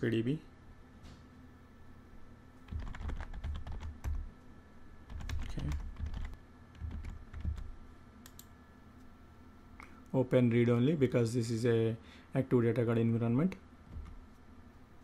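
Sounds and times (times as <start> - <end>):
keyboard typing clicks: 5.1 - 8.5.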